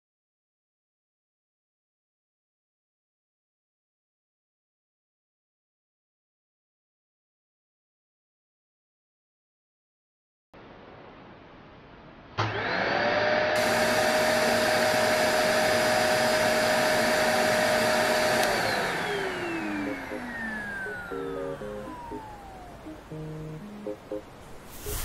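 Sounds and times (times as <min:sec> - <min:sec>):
stick vacuum cleaner motor whine: 0:12.4 - 0:23.4.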